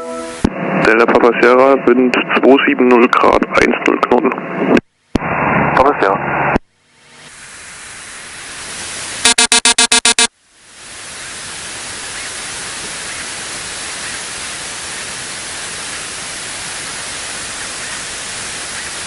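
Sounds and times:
aircraft cabin noise hiss: 0.2 - 9.3, 10.6 - 19.0
cockpit alert tone beeping: 9.3 - 10.3.

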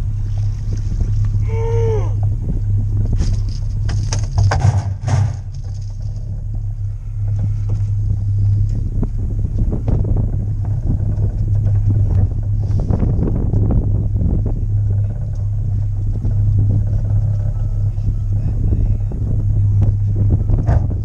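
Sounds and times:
boat motor running: 0.0 - 21.0
rising and falling whine: 0.0 - 21.0
knocks and clatter of gear: 3.0 - 18.4.

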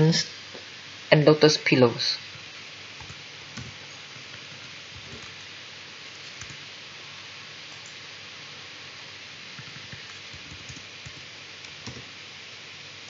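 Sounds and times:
steady hiss: 0.0 - 13.0
keyboard and mouse clicks: 3.0 - 5.5, 7.7 - 8.0, 9.6 - 12.1.

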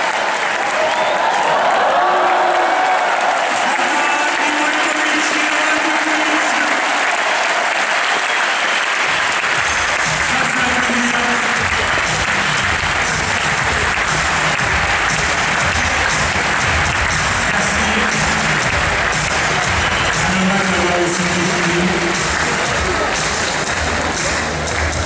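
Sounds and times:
crowd applauding: 0.0 - 25.0
bass-heavy music over speakers: 9.5 - 25.0.

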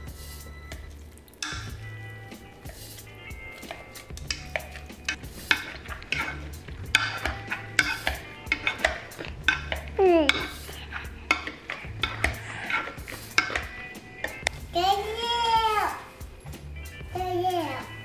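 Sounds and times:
potato masher squishing potatoes: 0.8 - 18.0
masher clinking against metal pot: 1.4 - 1.8, 3.5 - 14.6.

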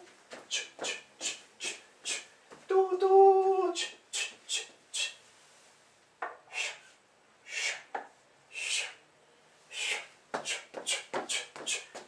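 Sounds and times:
man humming: 0.0 - 5.2.

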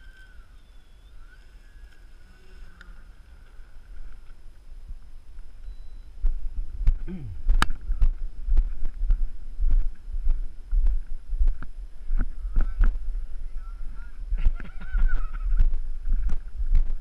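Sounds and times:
wind buffeting microphone: 6.2 - 17.0.

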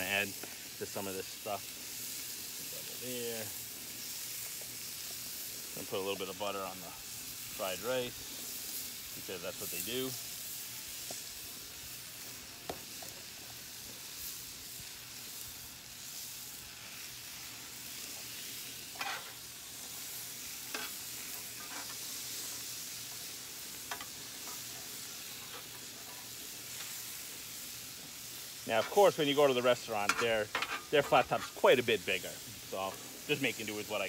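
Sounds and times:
food sizzling on a griddle: 0.0 - 34.0
metal spatulas scraping griddle: 18.9 - 19.4, 20.7 - 22.0, 28.7 - 31.7.

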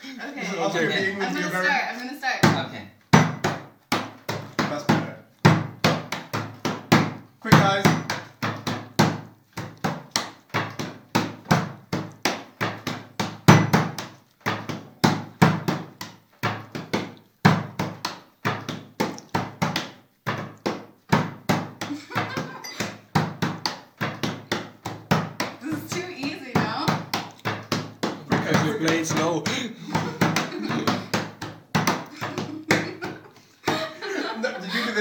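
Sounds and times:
hands slapping a tabletop: 2.4 - 34.0.

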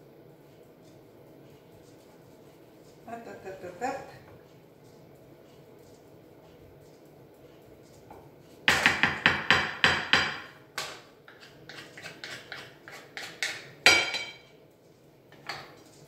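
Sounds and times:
wooden spatula knocking on glass dish: 8.7 - 10.9.

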